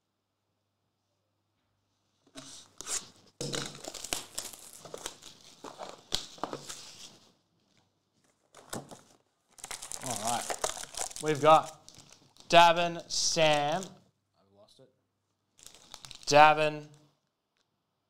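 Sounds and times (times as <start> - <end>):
plastic shrink wrap crinkling: 2.5 - 12.6, 13.3 - 14.0, 15.5 - 16.5.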